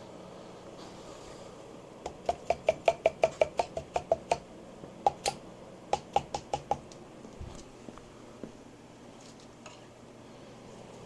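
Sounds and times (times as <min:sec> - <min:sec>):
wooden mallet tapping metal: 0:02.1 - 0:04.4, 0:06.0 - 0:06.8.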